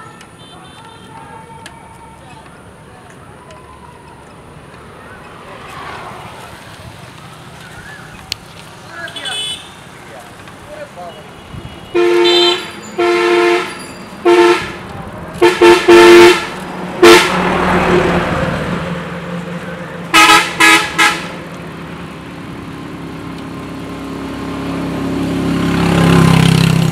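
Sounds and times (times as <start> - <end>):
road traffic passing: 0.0 - 26.9
vehicle horn honks: 0.4 - 1.2, 9.0 - 9.8, 11.1 - 14.8, 15.4 - 17.5, 20.1 - 21.4
approaching vehicle engine: 1.8 - 9.1, 12.0 - 26.9
large vehicle rushing past: 4.4 - 9.0, 13.6 - 20.2.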